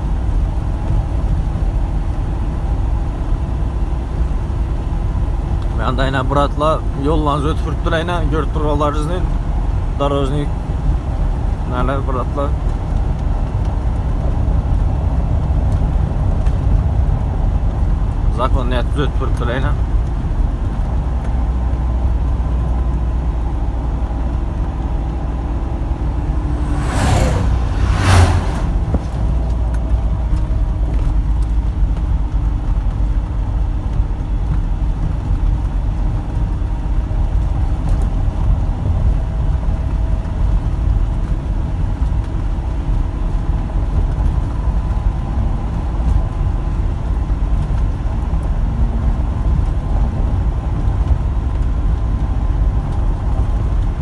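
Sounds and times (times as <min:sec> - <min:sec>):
truck engine and road rumble: 0:00.0 - 0:54.0
vehicles rushing past: 0:22.7 - 0:32.3.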